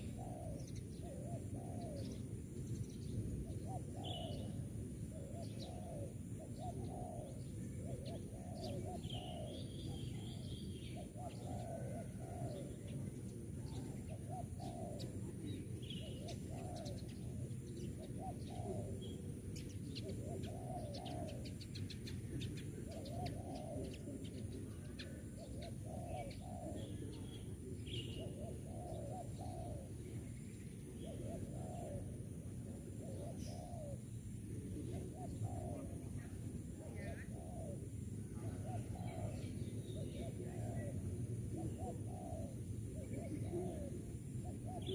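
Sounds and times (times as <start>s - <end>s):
dove cooing: 0.0s - 44.9s.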